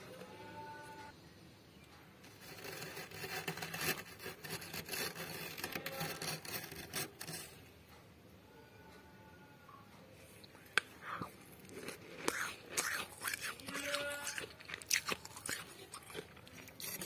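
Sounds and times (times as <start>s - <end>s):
spoon scraping frost: 2.3s - 7.6s, 11.6s - 17.0s.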